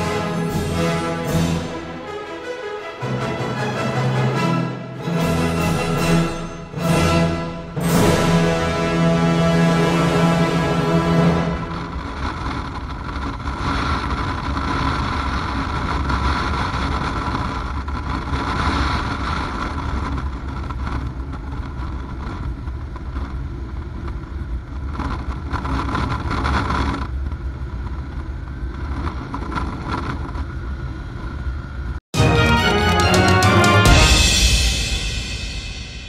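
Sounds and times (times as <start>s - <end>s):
rushing wind noise: 6.8s - 31.9s.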